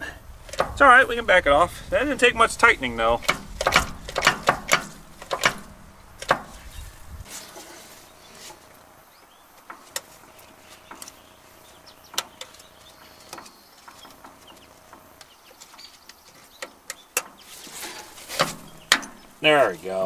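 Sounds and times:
sharp metal clicks and taps: 0.5s - 0.8s, 3.2s - 6.5s, 13.3s - 17.4s, 18.4s - 19.3s.

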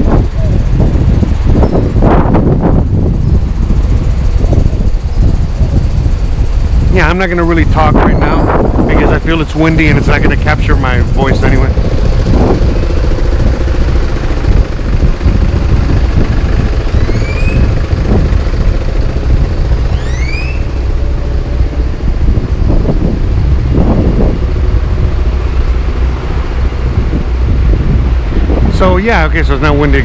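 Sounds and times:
street traffic passing: 0.0s - 30.0s
wind buffeting microphone: 0.0s - 30.0s
short rising whistles: 17.0s - 17.7s, 19.9s - 20.8s.

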